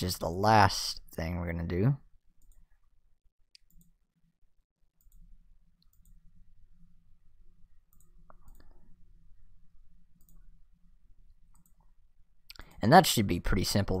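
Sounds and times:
low steady hum: 0:03.8 - 0:14.0
faint computer mouse clicks: 0:07.9 - 0:08.8, 0:10.2 - 0:10.4.

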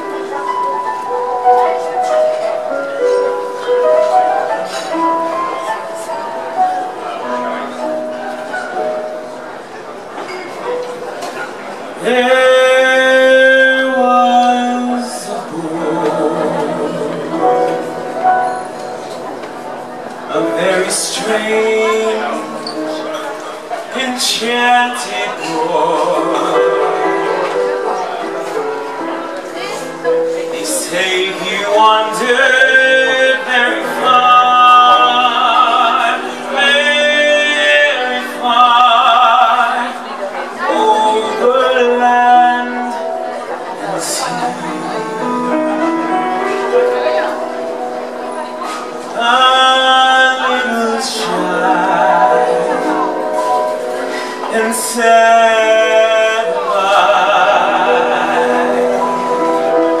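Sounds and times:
piano accompaniment: 0:00.0 - 1:00.0
man singing with vibrato: 0:11.9 - 0:19.0, 0:19.7 - 0:47.6, 0:48.2 - 1:00.0.

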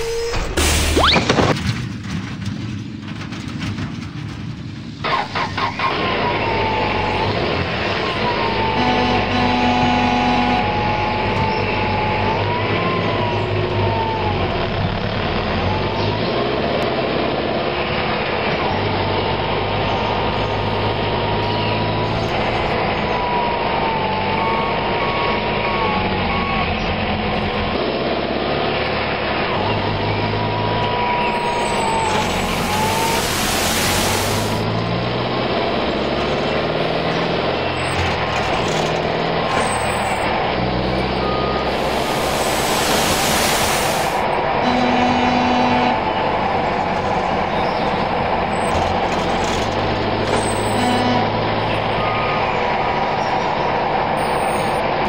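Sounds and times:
cartoon truck engine: 0:00.0 - 0:55.0
burst of hiss: 0:32.3 - 0:34.6, 0:41.7 - 0:44.2.

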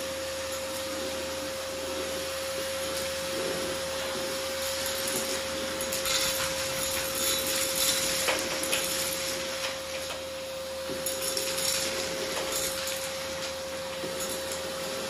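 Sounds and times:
vacuum cleaner running: 0:00.0 - 0:15.0
debris clicking in vacuum wand: 0:04.7 - 0:10.3, 0:10.9 - 0:15.0.

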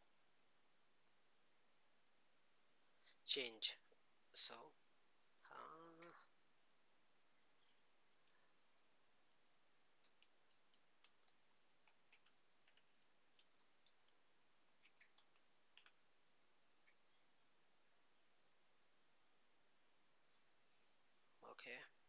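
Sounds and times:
faint keyboard typing: 0:08.2 - 0:08.6, 0:09.2 - 0:16.0, 0:16.8 - 0:17.1.

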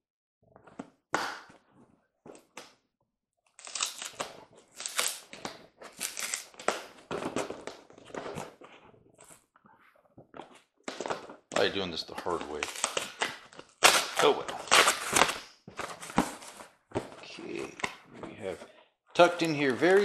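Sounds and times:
packing tape ripping: 0:03.5 - 0:06.9, 0:12.6 - 0:15.5
cardboard crunching and tearing: 0:03.6 - 0:05.3, 0:05.9 - 0:06.7, 0:12.6 - 0:16.6.

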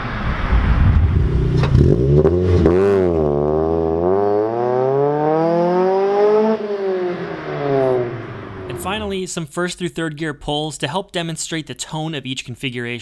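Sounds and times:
car engine revving: 0:00.0 - 0:09.1.

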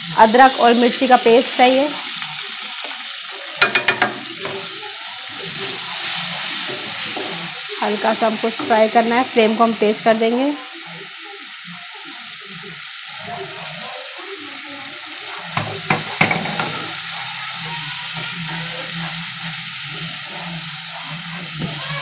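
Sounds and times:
paste sizzling in hot oil: 0:00.0 - 0:22.0
spatula scraping a pan: 0:03.6 - 0:09.6, 0:15.3 - 0:21.8.

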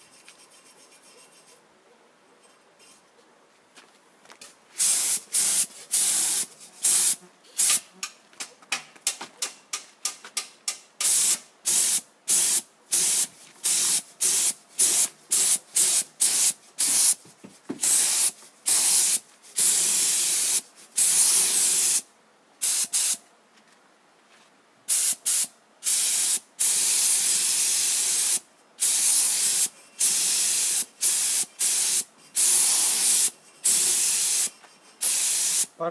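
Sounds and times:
paint spray gun hissing: 0:04.8 - 0:07.9, 0:11.0 - 0:17.2, 0:17.8 - 0:22.0, 0:22.6 - 0:23.2, 0:24.9 - 0:35.7.

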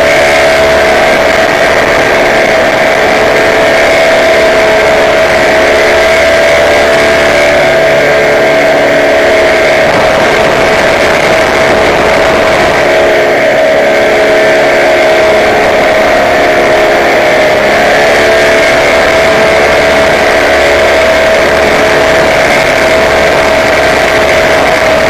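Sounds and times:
rushing air noise: 0:00.0 - 0:25.0
small aircraft engine running: 0:00.0 - 0:25.0.

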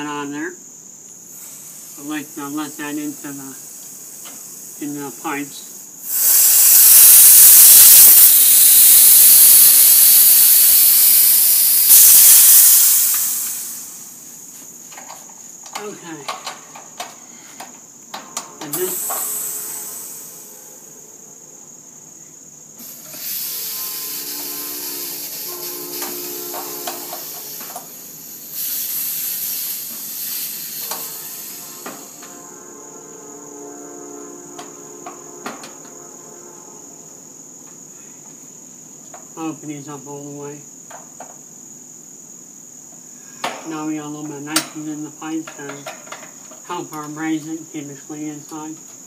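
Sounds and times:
gas hissing out of valves: 0:01.3 - 0:20.5, 0:22.8 - 0:32.5.

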